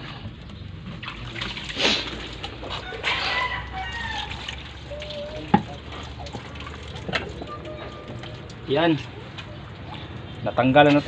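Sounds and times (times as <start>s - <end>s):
water splashing from dipper: 0.6s - 11.0s
rooster crowing: 2.7s - 4.6s.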